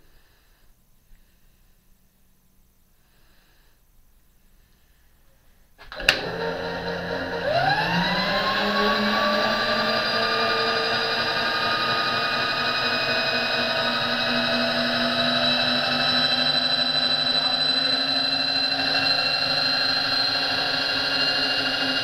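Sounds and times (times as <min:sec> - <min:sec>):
motor switch click: 0:05.8 - 0:06.3
power-feed motor whining: 0:05.8 - 0:22.0.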